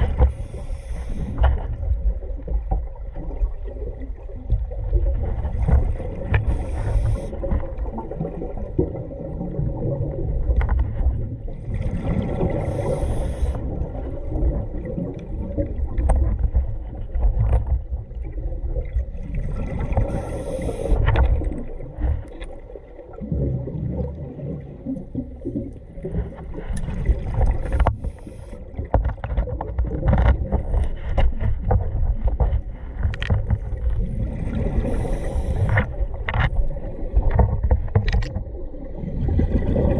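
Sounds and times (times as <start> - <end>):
regulator bubbles gurgling: 0.0 - 39.9
underwater low rumble: 0.0 - 39.9.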